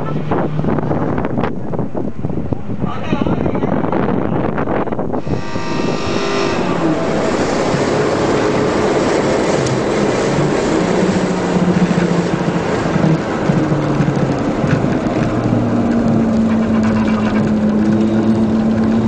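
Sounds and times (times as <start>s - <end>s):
road and wind noise: 0.0s - 19.0s
race car engine revving: 5.2s - 19.0s.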